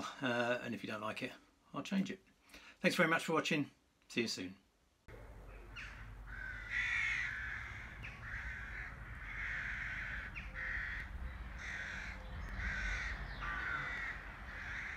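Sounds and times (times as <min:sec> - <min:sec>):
crow cawing: 0:05.4 - 0:14.9.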